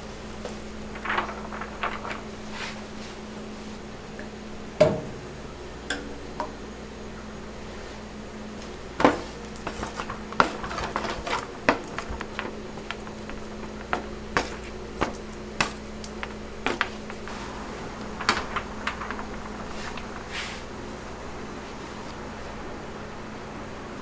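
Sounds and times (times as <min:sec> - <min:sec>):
steady low hum: 0:00.0 - 0:24.0
utensils clinking on metal pans: 0:09.0 - 0:17.3.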